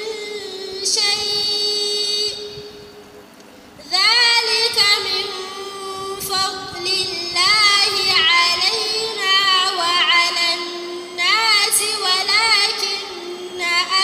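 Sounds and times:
woman chanting into microphone: 3.8s - 14.0s.

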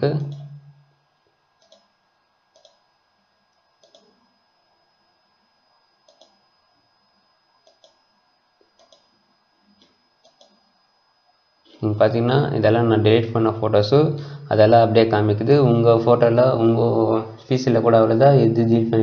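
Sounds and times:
computer mouse clicks: 1.6s - 1.9s, 2.5s - 2.8s, 3.8s - 4.2s, 6.0s - 6.4s, 7.6s - 8.0s, 8.6s - 10.6s.

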